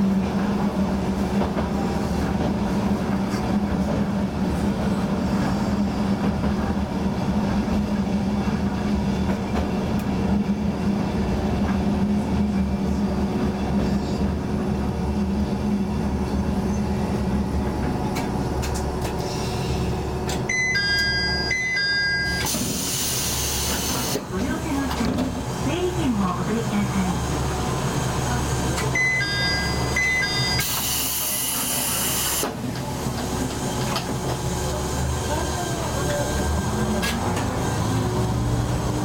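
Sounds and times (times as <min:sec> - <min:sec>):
diesel railcar idling: 0:09.4 - 0:39.0
electronic chime beeps: 0:29.0 - 0:30.7.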